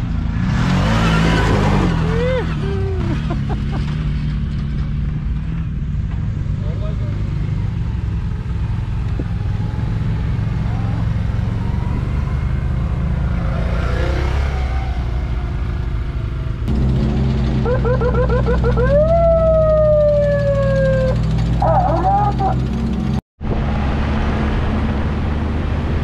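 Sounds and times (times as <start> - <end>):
vehicle engine running: 1.7 - 26.0
electronic siren: 17.6 - 22.6.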